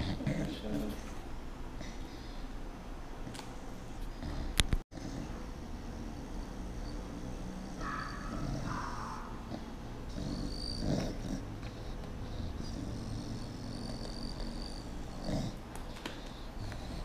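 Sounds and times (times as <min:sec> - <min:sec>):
small dog growling: 0:04.2 - 0:15.7.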